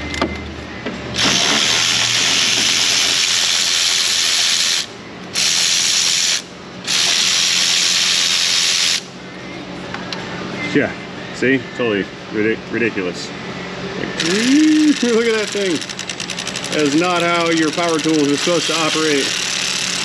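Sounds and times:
power ratchet whirring: 1.2 - 9.1, 14.2 - 20.0.

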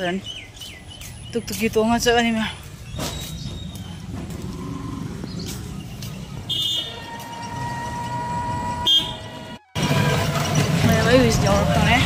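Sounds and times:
auto-rickshaw engine rumbling: 0.0 - 12.0
short high horn beep: 6.5 - 10.1.

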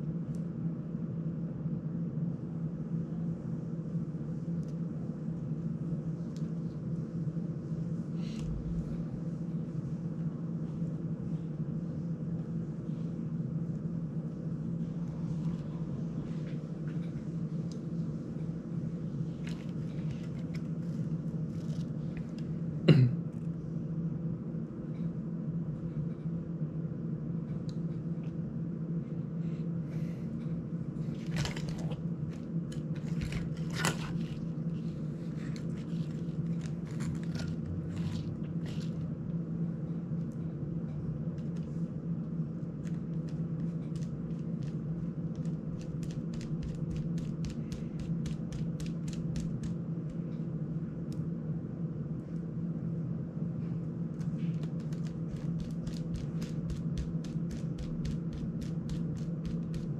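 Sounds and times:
steady low hum: 0.0 - 59.9
hands clicking and tapping plastic: 42.8 - 49.8, 54.2 - 59.9.

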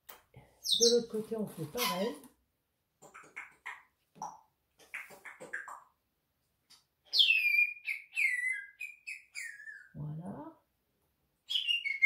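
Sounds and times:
bird whistled calls: 7.2 - 9.9.

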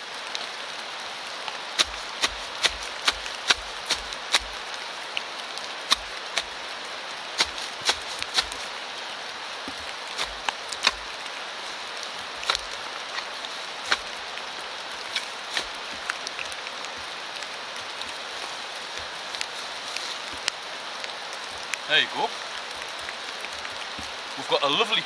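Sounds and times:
steady rain hiss: 0.0 - 25.0
sharp ticks and knocks: 1.8 - 4.7, 5.9 - 6.5, 7.4 - 8.7, 12.4 - 13.3
turf being torn up: 9.7 - 11.1.

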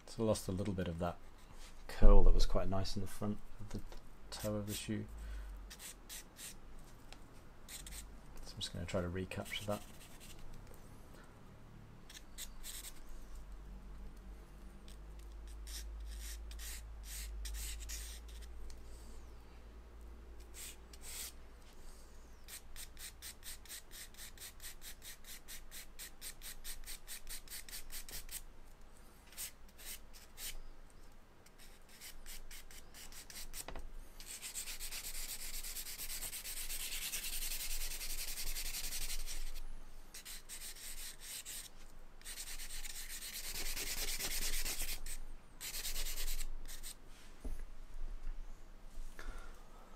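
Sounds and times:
charcoal scratching on paper: 5.7 - 6.6, 7.7 - 8.1, 9.4 - 10.4, 12.1 - 13.1, 14.9 - 18.5, 20.4 - 21.4, 22.5 - 28.4, 29.3 - 30.6, 31.5 - 47.0.

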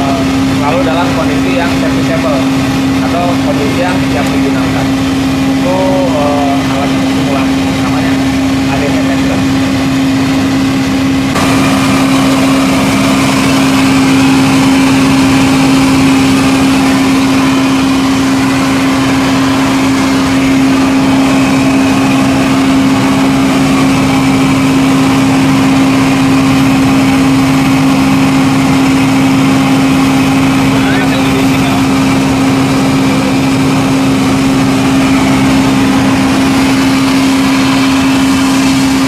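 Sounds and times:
ground power unit engine hum: 0.0 - 39.0.

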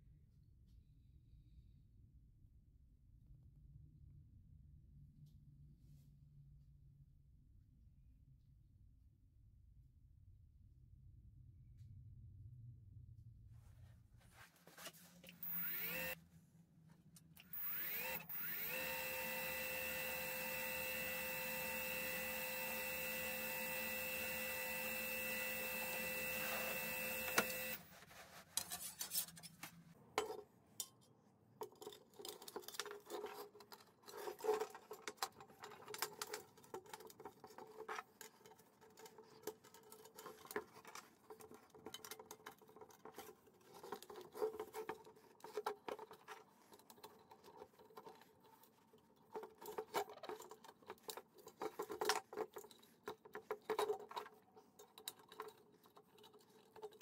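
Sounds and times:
power tool motor whining: 15.4 - 16.2, 17.5 - 27.9.

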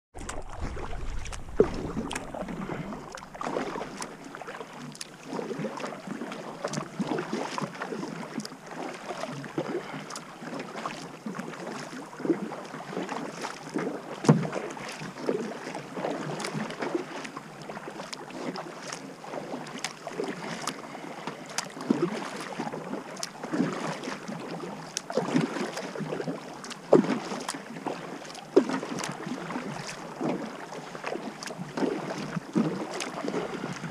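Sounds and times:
paddle splashing in water: 0.1 - 33.9
water trickling and dripping: 0.2 - 5.2.

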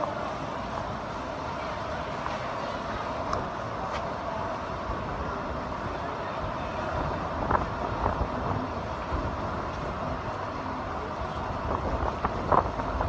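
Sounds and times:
city traffic rumble: 0.0 - 13.0
wind on microphone: 11.4 - 13.0.

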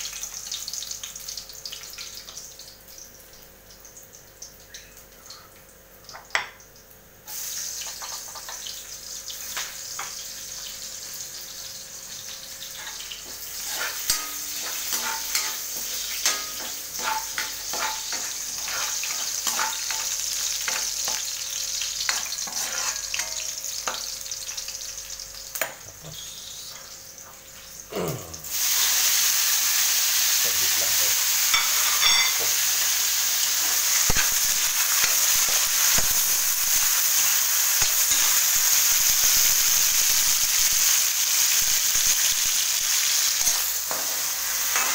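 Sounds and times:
food sizzling in hot oil: 0.0 - 44.9
metal spatula scraping and clinking: 12.8 - 21.2, 22.1 - 23.5, 31.5 - 32.5.

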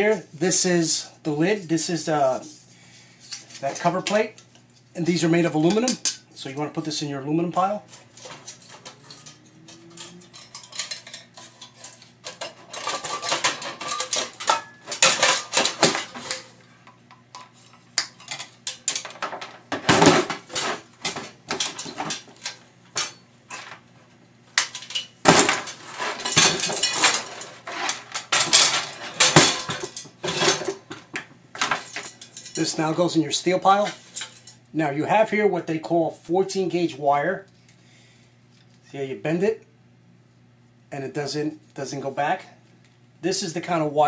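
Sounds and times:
thin metal parts clanking and rattling: 7.9 - 23.8, 24.5 - 34.6.

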